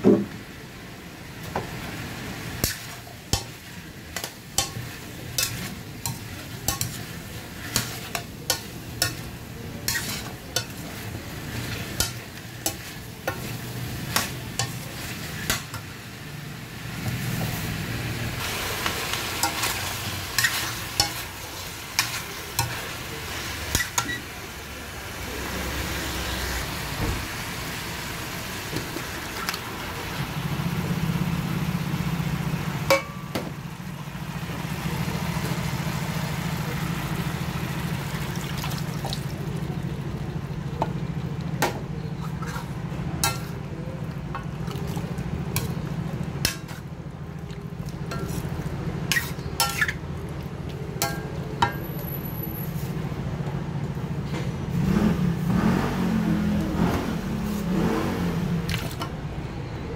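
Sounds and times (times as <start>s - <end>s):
food sizzling in a wok: 0.2s - 40.5s, 48.0s - 50.0s, 56.3s - 59.0s
metal ladle scraping pan: 2.6s - 15.9s, 18.4s - 21.4s, 42.0s - 43.6s, 48.1s - 50.0s.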